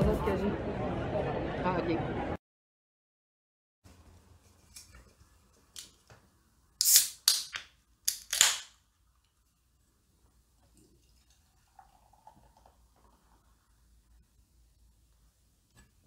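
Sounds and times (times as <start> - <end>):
beer can hissing open: 6.8 - 8.6.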